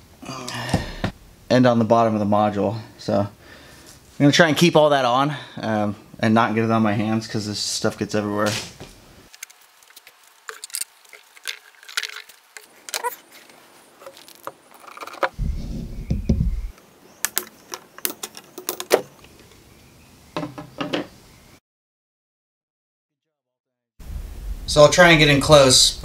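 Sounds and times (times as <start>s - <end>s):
low rumble: 15.4s - 16.7s
metal parts clinking on workbench: 17.2s - 19.1s.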